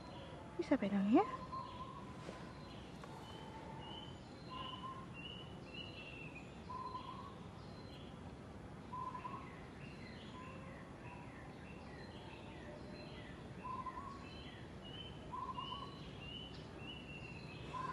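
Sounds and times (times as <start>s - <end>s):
steady outdoor background hiss: 0.0s - 17.9s
birds chirping and whistling: 1.4s - 8.0s, 13.6s - 17.9s.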